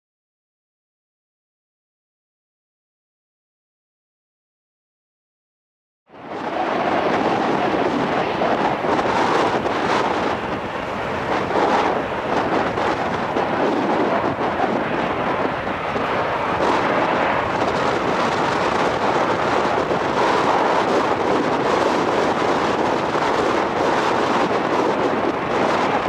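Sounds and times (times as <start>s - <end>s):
jet engines roaring: 6.1s - 26.0s.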